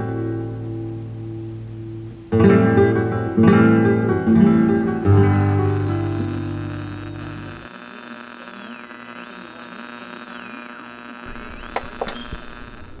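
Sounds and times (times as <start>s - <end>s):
guitar chord ringing: 0.0s - 7.7s
electronic hum: 0.0s - 13.0s
thin whining tone sliding: 11.4s - 13.0s.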